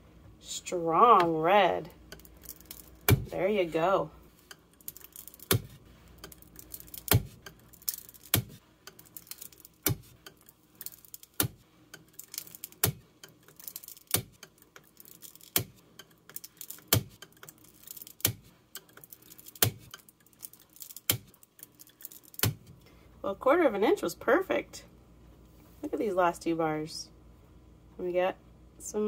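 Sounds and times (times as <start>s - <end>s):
wire ticking through soap: 2.0s - 3.4s, 4.3s - 22.9s.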